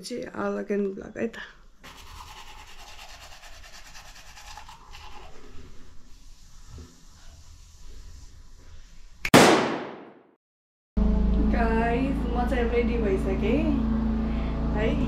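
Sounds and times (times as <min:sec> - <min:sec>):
toothbrush scrubbing teeth: 0:01.8 - 0:08.2.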